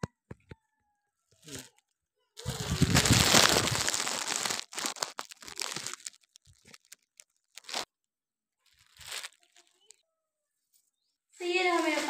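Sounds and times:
plastic mailer rustling and crinkling: 2.4 - 7.9, 8.6 - 10.0, 11.4 - 12.0.

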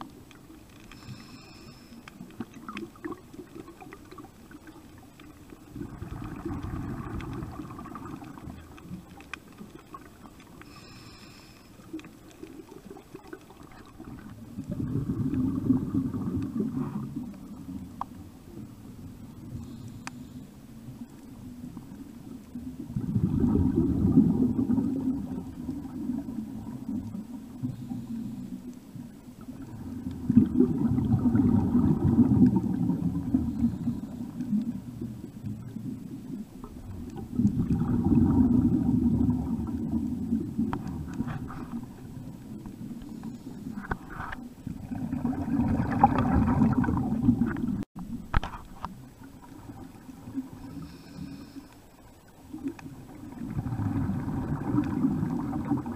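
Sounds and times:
underwater exhaled bubbles gurgling: 0.0 - 55.9
diver inhaling: 0.9 - 2.2, 10.6 - 11.9, 50.6 - 51.9.

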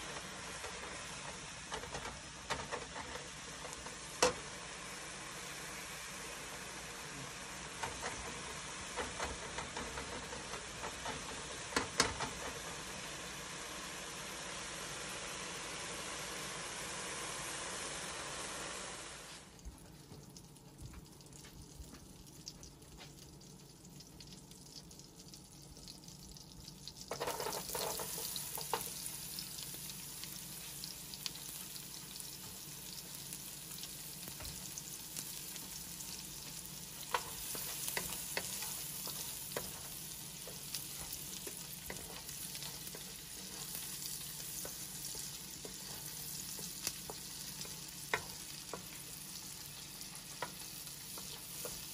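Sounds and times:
onion sizzling in butter: 0.0 - 51.9
wooden spoon tapping and scraping: 27.1 - 29.0, 35.5 - 51.9.

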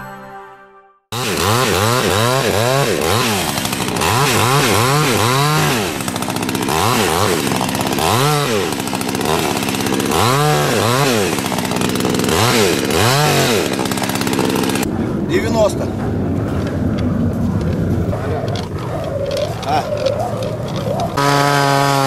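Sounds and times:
chainsaw cutting ice: 1.1 - 14.9, 19.5 - 22.0.

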